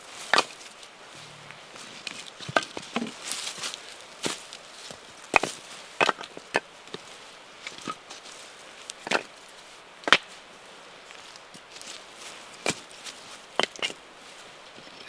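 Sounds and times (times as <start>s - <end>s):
wood logs clacking: 0.3s - 0.7s, 1.8s - 8.2s, 8.9s - 9.3s, 10.0s - 10.3s, 12.6s - 14.0s.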